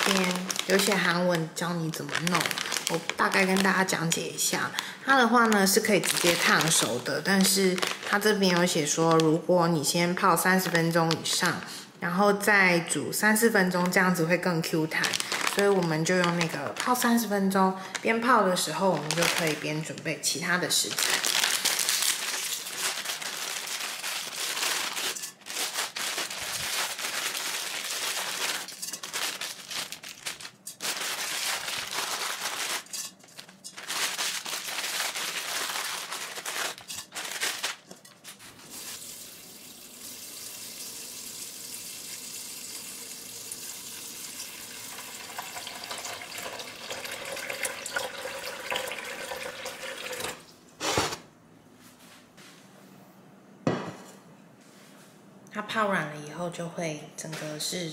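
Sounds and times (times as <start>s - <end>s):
plastic packets crinkling: 0.0s - 11.7s, 13.5s - 39.2s.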